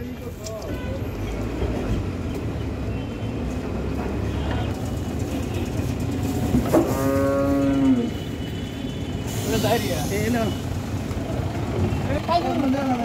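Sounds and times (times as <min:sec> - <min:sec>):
low rumble of engines: 0:00.0 - 0:13.0
vehicle horn: 0:00.6 - 0:01.1, 0:06.8 - 0:09.8.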